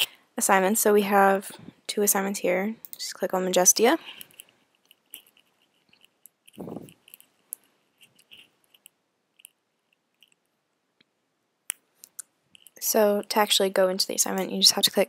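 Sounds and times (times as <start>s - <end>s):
small clicks and ticks: 4.1s - 10.5s, 11.7s - 12.8s.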